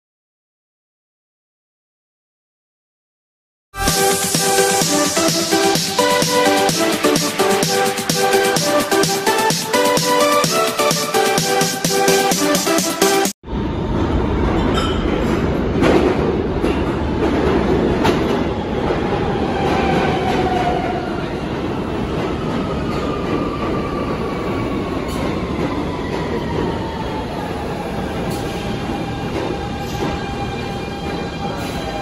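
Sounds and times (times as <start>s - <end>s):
train wheels rumbling over rails: 13.6s - 32.0s.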